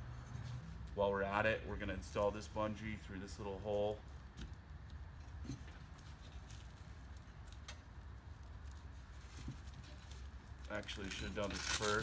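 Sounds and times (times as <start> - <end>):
low steady hum: 0.0 - 12.0
cord handling noise: 8.7 - 12.0.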